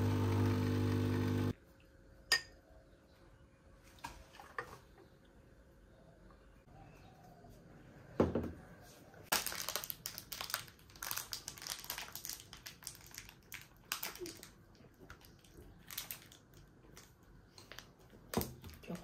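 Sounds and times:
crinkling and rustling: 0:09.2 - 0:19.0.

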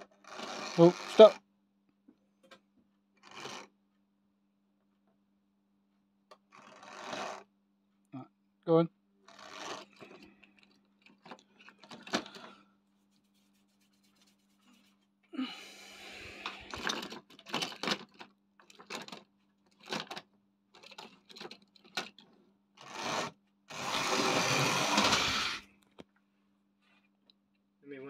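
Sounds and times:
model train motor whirring: 0:00.0 - 0:01.4, 0:03.2 - 0:03.7, 0:06.5 - 0:07.5, 0:09.3 - 0:10.2, 0:22.8 - 0:25.6.

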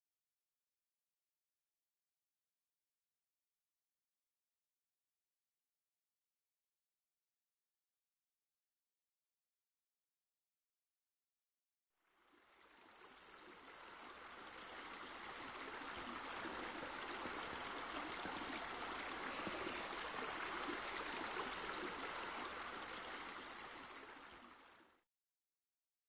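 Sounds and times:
flowing water: 0:12.0 - 0:25.0.

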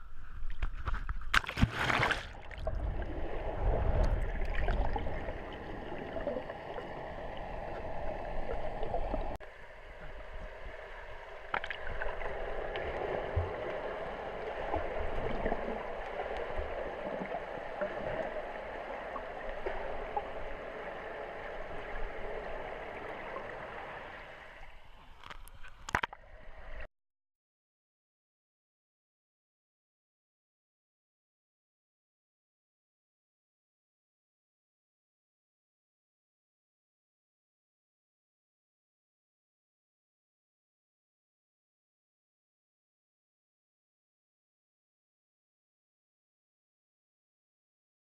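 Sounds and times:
muffled underwater water rushing: 0:00.0 - 0:26.9.

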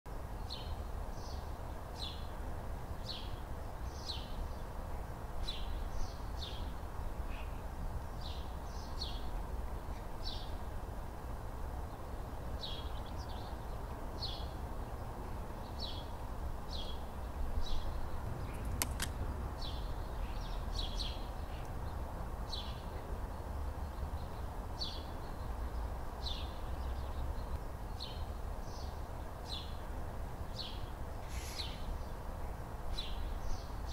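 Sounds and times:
sharp click: 0:18.6 - 0:19.2
small bird chirping: 0:30.6 - 0:31.9.

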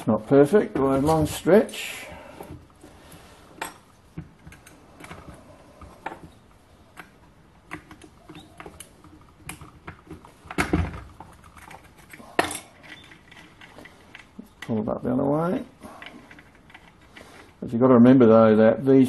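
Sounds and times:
metal tools clicking and tapping: 0:03.6 - 0:06.3, 0:06.9 - 0:14.8, 0:15.9 - 0:17.6.

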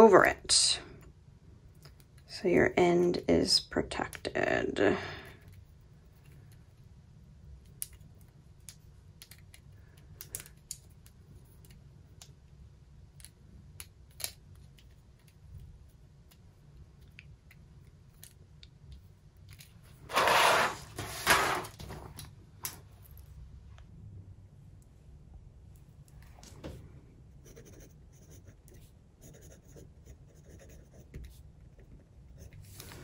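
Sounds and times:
loud rustling scrape: 0:20.0 - 0:22.0.

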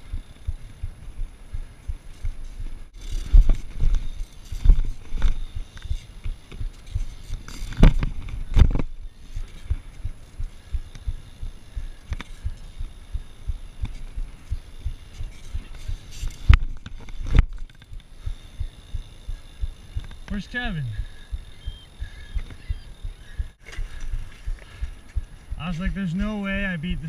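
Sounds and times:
bike rolling over concrete: 0:00.1 - 0:20.5.

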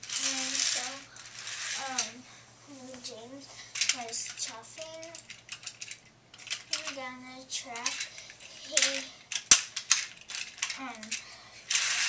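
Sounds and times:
plastic toy train clattering: 0:00.0 - 0:02.2, 0:03.8 - 0:12.0
child making voice sounds: 0:08.6 - 0:09.1.

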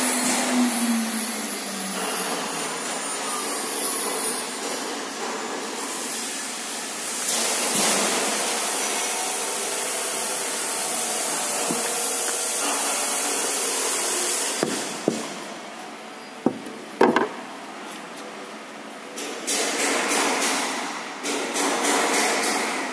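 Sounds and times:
router milling wood: 0:08.8 - 0:15.2
sharp knocks: 0:14.6 - 0:15.4, 0:16.4 - 0:17.4.

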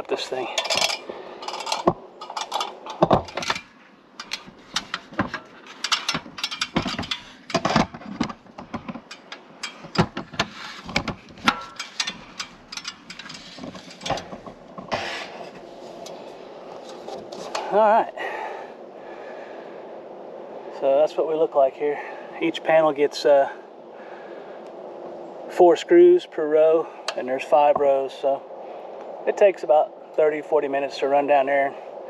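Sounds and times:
metal ladder clanking: 0:00.0 - 0:17.8
footsteps on sheet-metal roof: 0:04.4 - 0:12.4.

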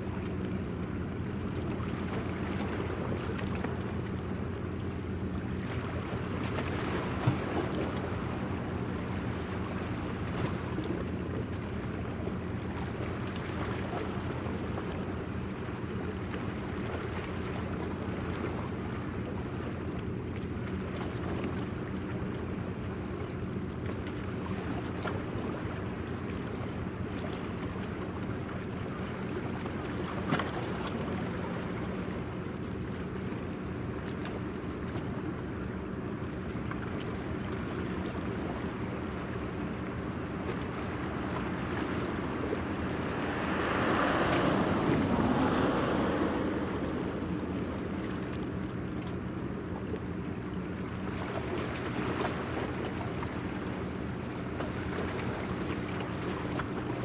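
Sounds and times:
ship engines humming: 0:00.0 - 0:57.0
rush of noise: 0:42.1 - 0:48.1.

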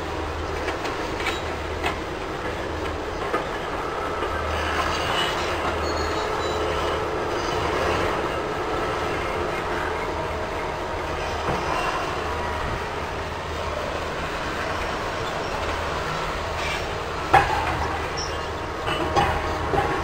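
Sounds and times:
heavy machinery rumble: 0:00.0 - 0:20.0.

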